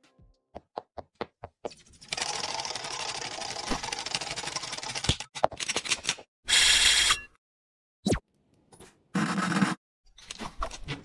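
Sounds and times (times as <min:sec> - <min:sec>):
fast mechanical clatter: 0:02.0 - 0:05.3.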